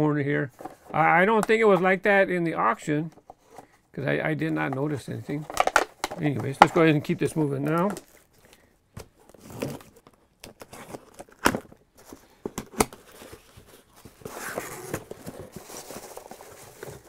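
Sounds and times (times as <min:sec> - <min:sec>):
crinkly rustling of cardboard and plastic: 0:04.4 - 0:17.0.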